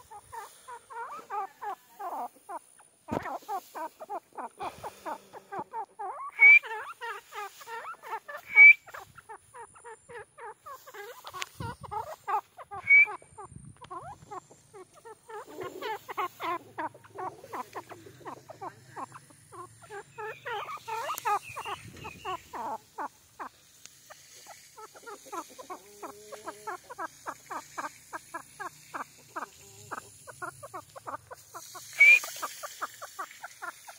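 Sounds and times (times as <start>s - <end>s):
francolin clucking: 0.0s - 33.9s
sharp rising bird chirp: 6.2s - 7.0s, 8.4s - 9.0s, 12.7s - 14.6s, 16.8s - 22.8s.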